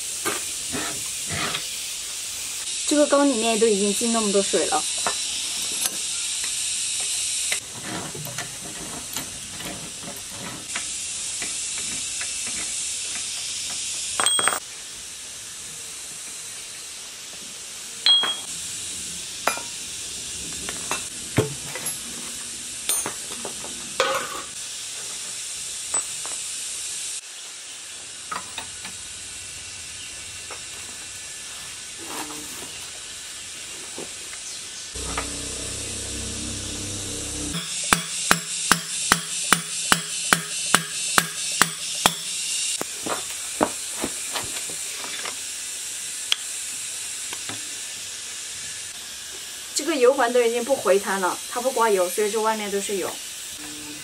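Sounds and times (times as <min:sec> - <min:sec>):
steady high hiss: 0:00.0 - 0:07.7, 0:09.1 - 0:54.0
wrench clinking and scraping metal: 0:14.2 - 0:14.6.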